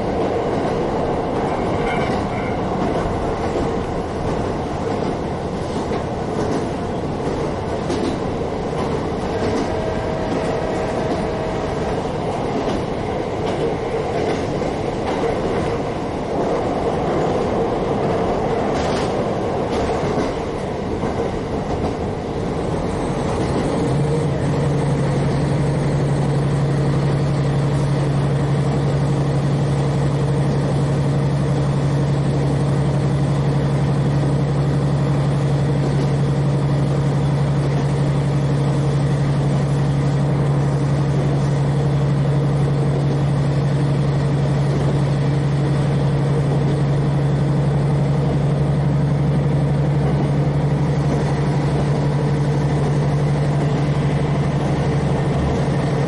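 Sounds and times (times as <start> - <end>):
diesel railcar engine drone: 0.0 - 56.0.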